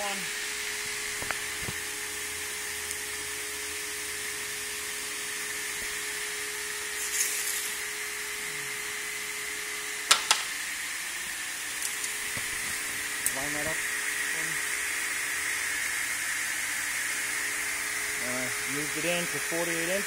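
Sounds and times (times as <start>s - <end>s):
pneumatic machine hiss and hum: 5.2s - 9.1s.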